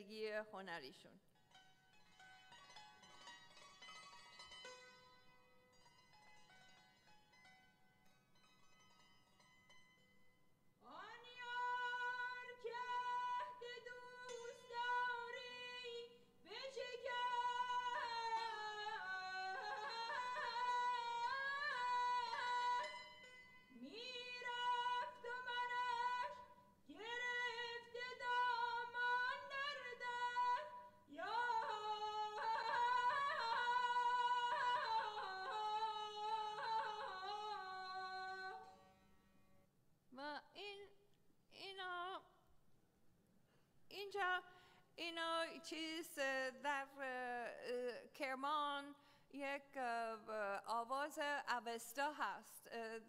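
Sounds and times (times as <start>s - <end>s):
girl singing with ornaments: 10.8s - 38.7s, 43.9s - 53.0s.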